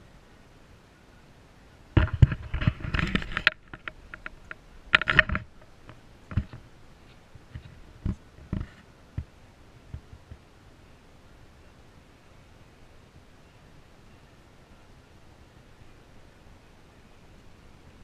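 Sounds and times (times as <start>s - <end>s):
knocking and clattering: 2.0s - 5.6s.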